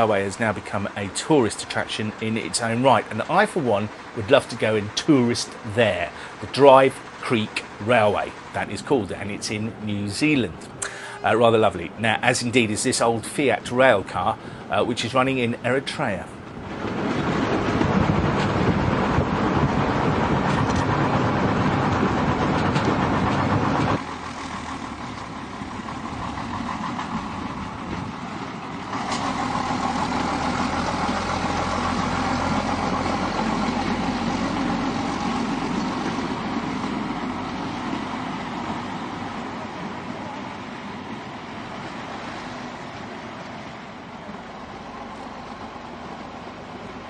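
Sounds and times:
railcar engine running: 0.0 - 47.0.

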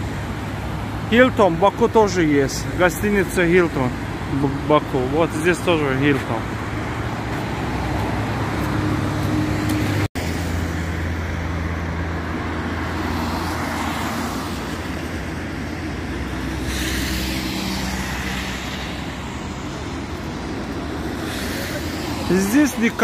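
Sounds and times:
cars driving past: 0.0 - 23.0
vehicle passing loudly: 0.0 - 23.0.

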